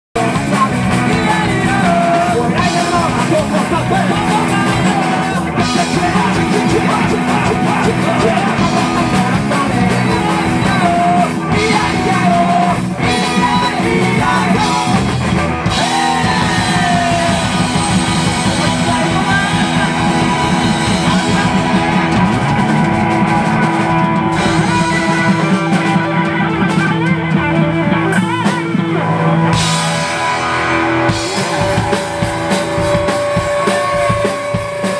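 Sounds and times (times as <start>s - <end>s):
person singing: 0.2s - 29.7s, 31.1s - 34.9s
drum kit: 0.2s - 34.9s
electric guitar: 0.2s - 34.9s.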